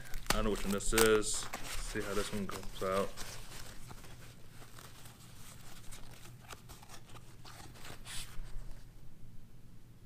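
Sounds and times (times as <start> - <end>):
packing wrap crinkling: 0.0 - 8.9.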